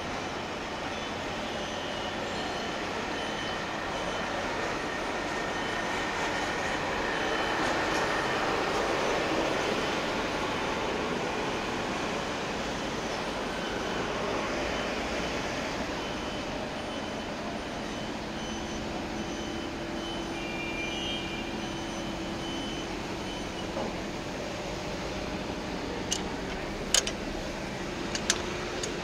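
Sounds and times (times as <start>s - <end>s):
street traffic: 0.0s - 29.0s
sharp clicks: 26.1s - 27.2s, 28.1s - 29.0s.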